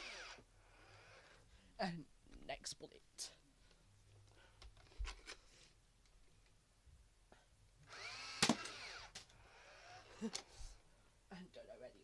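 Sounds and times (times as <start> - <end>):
foam dart firing whir and snap: 8.4 - 9.2
toy blaster loading clicks: 8.4 - 9.3.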